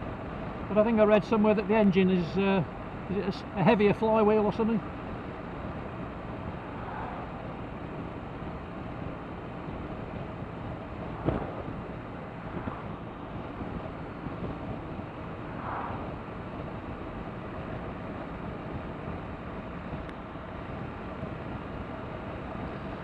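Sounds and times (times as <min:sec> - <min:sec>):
road noise: 0:00.0 - 0:23.0
motorcycle engine cruising: 0:04.8 - 0:23.0
wind noise: 0:05.7 - 0:20.1.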